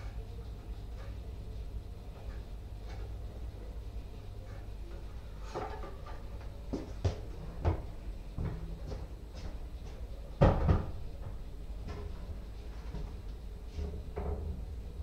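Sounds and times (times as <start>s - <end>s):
footsteps on tiled floor: 6.4s - 10.1s.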